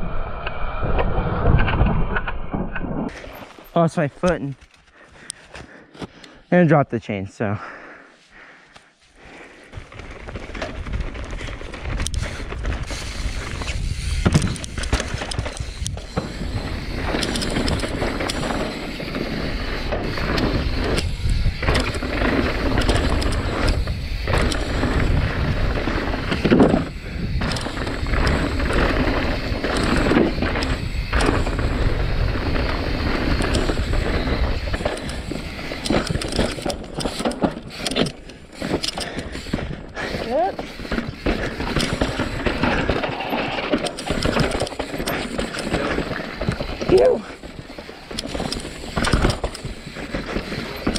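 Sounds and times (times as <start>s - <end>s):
bike tyres over rock and dirt: 0.8s - 5.8s, 9.2s - 50.9s
bike knocking and rattling: 9.7s - 50.9s
wind rumble on microphone: 19.6s - 36.2s.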